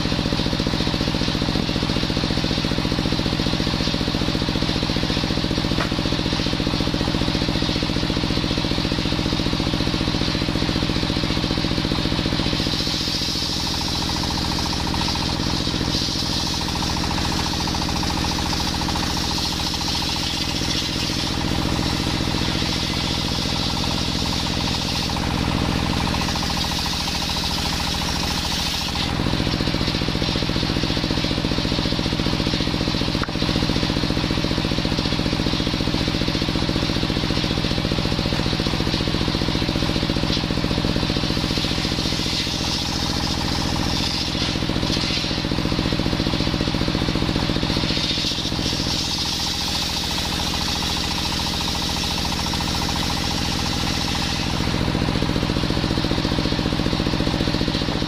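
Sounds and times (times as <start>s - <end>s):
stationary engine running: 0.0s - 58.0s
saw blade ripping wood: 40.2s - 46.4s, 47.0s - 54.8s.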